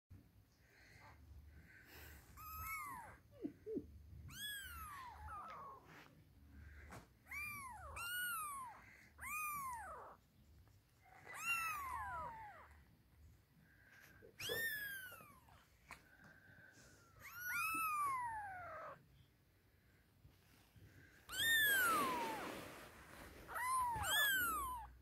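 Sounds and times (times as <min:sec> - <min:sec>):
kittens mewing: 0:01.9 - 0:06.1, 0:11.0 - 0:12.9, 0:14.0 - 0:16.3, 0:17.0 - 0:19.1, 0:21.3 - 0:22.6, 0:23.4 - 0:25.0.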